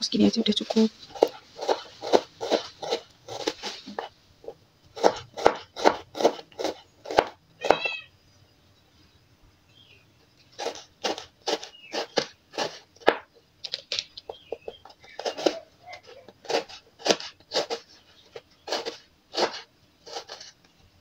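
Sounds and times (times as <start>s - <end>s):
knife chopping on plastic board: 1.1s - 4.1s, 4.9s - 7.8s, 10.6s - 13.3s, 14.5s - 15.6s, 16.3s - 20.5s.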